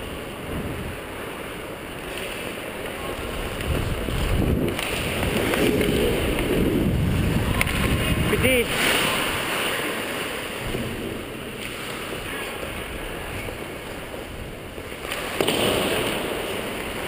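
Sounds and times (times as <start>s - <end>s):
wind rushing over microphone: 0.0s - 1.2s, 3.0s - 9.6s
skates scraping on ice: 0.2s - 17.0s.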